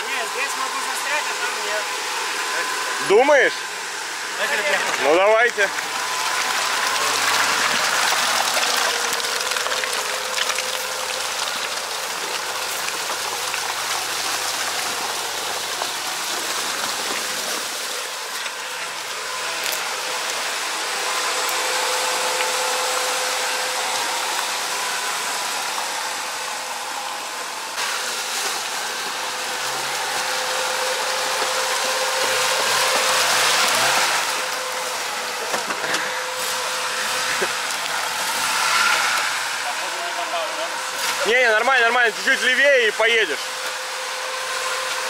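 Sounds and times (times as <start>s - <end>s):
vehicle splashing through mud: 4.4s - 20.5s, 27.8s - 43.7s.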